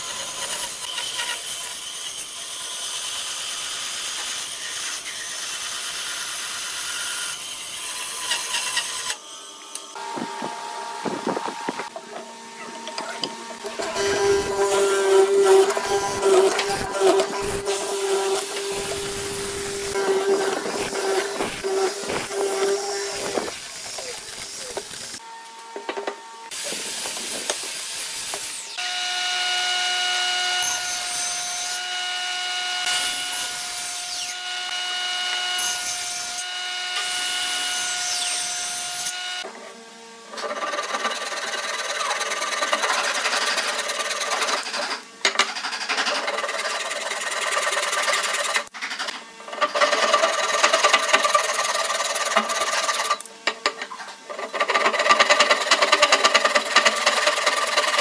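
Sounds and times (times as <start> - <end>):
table saw whine: 0.0 - 58.0
mortiser cutting wood: 13.0 - 25.2, 40.4 - 58.0
hand saw rasping through wood: 13.7 - 24.8, 40.4 - 48.7, 49.6 - 53.3, 54.3 - 58.0.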